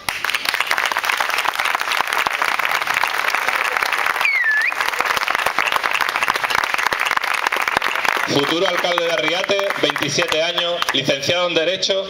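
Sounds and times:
audience clapping: 0:00.0 - 0:11.4
short whistle: 0:04.2 - 0:04.9.

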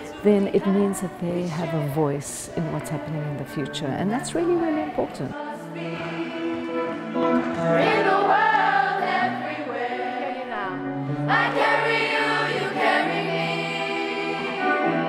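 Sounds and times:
children's choir singing: 0:00.0 - 0:03.7, 0:04.4 - 0:15.0
electric guitar chords: 0:04.6 - 0:15.0.

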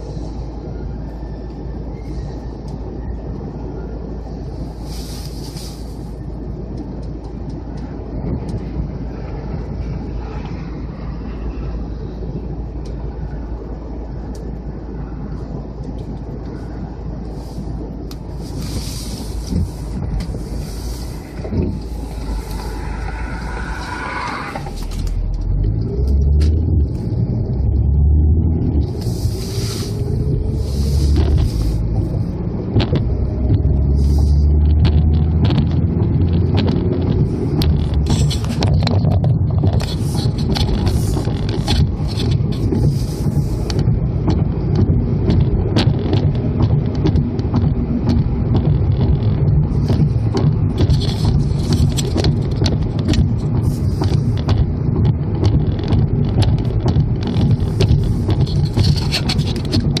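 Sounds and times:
car road and wind noise: 0:00.0 - 1:00.0
small clicks and rattles: 0:34.7 - 1:00.0.

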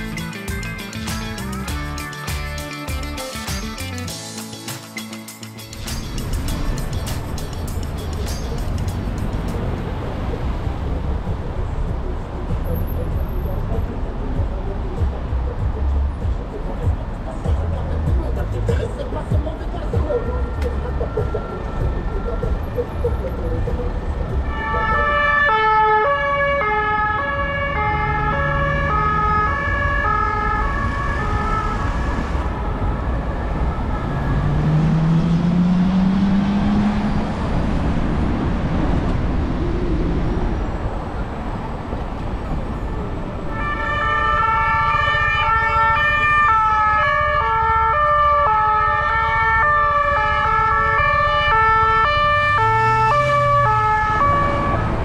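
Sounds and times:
street traffic noise: 0:00.0 - 0:55.0
two-tone siren: 0:20.6 - 0:36.1, 0:43.5 - 0:55.0
vehicle engine accelerating: 0:30.9 - 0:42.8, 0:52.1 - 0:55.0.

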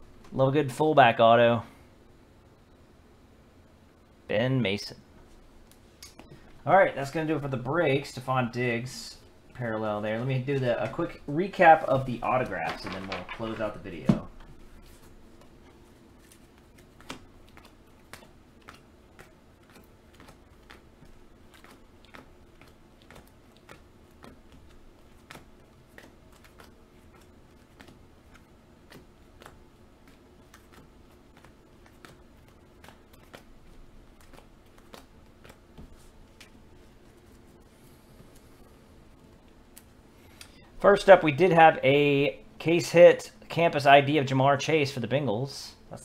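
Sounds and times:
low steady hum: 0:00.0 - 0:46.0
faint clicks and taps: 0:12.4 - 0:40.6.

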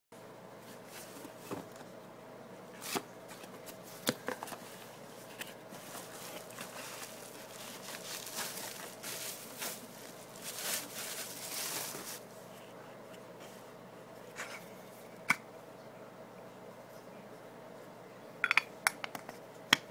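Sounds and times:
faint steady hum: 0:00.2 - 0:19.9
rustling and crinkling packaging: 0:02.8 - 0:12.4.

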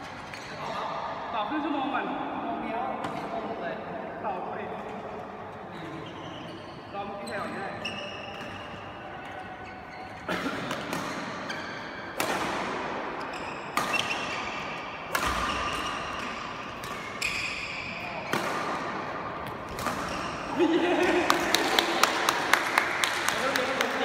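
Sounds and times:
badminton racket hitting shuttlecock: 0:12.1 - 0:20.4.

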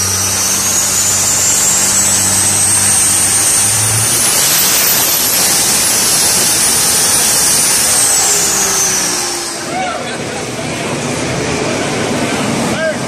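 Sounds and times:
turbo whistle: 0:00.0 - 0:10.0
turbocharged engine running hard: 0:00.0 - 0:13.0.

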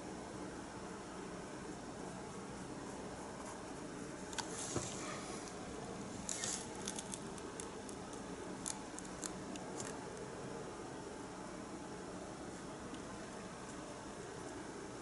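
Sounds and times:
low hiss: 0:00.0 - 0:15.0
paintbrush strokes on canvas: 0:01.8 - 0:06.8
light ticks and dabs: 0:06.2 - 0:10.3.

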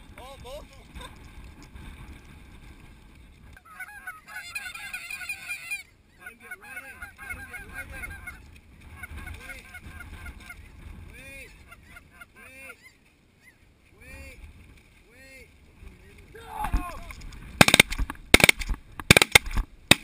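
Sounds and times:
snow geese honking: 0:03.6 - 0:10.8, 0:11.5 - 0:13.7.

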